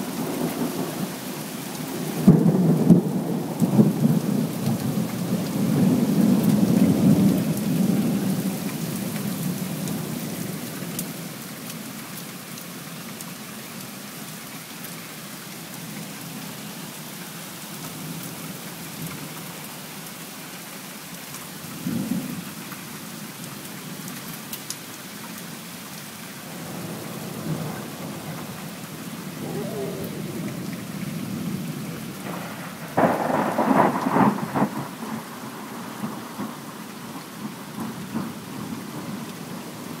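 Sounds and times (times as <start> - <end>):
heavy rain: 0.0 - 40.0
rolling thunder: 26.6 - 36.6
sharp thunder clap: 32.2 - 34.9.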